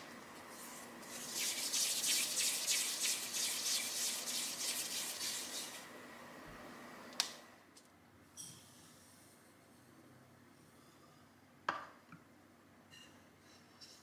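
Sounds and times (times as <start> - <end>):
hands rubbing dough: 0.0 - 5.9.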